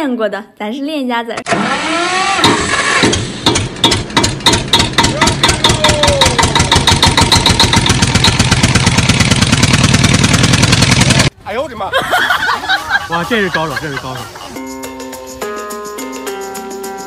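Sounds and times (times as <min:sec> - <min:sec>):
engine chugging: 0:02.3 - 0:12.0.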